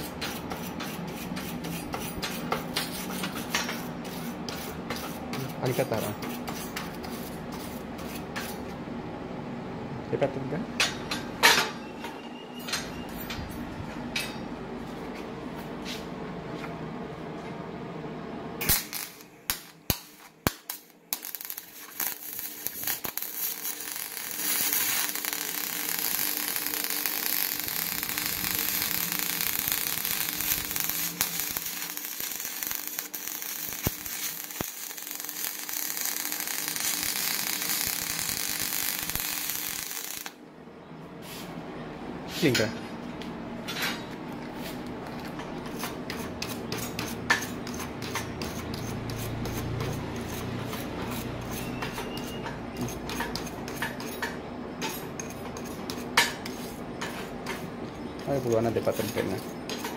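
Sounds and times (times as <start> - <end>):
sharp cracks of welding arc strike: 18.6 - 40.4
welding arc hissing and crackling: 18.6 - 40.4
wire brush scrubbing metal: 21.2 - 40.3, 58.4 - 59.9.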